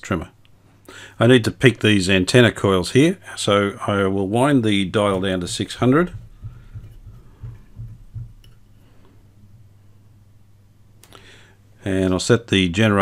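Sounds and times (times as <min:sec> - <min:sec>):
faint low hum: 0:00.0 - 0:13.0
soft low bumps: 0:04.9 - 0:09.7.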